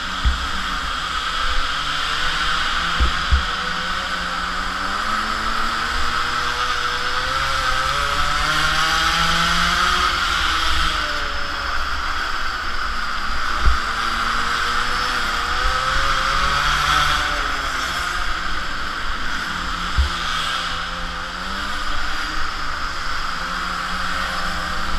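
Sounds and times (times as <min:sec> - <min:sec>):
small two-stroke engine revving: 0:00.0 - 0:24.9
thump: 0:00.2 - 0:00.8, 0:03.0 - 0:03.6.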